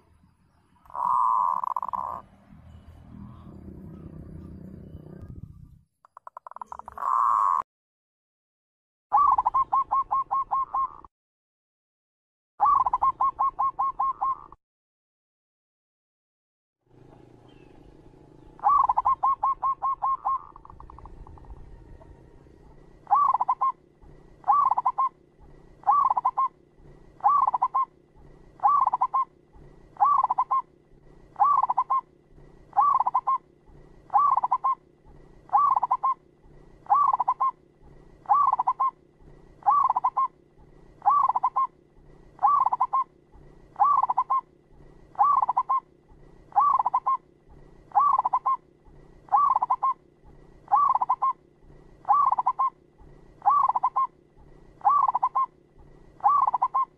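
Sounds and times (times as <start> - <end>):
dove cooing: 0.9 - 2.2, 6.5 - 7.6, 9.1 - 11.1, 12.6 - 14.6, 18.6 - 56.9.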